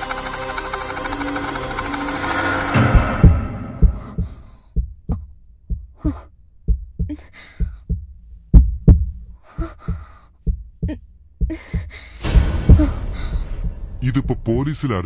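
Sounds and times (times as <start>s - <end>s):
heartbeat double thump: 2.7s - 14.3s.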